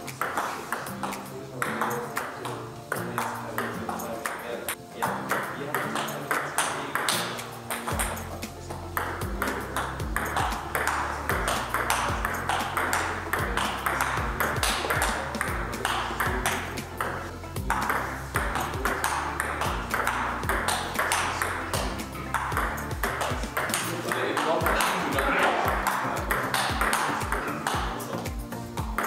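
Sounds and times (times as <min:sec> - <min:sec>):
table tennis ball clicking: 0:00.0 - 0:29.0
background music with bass beat: 0:07.2 - 0:29.0.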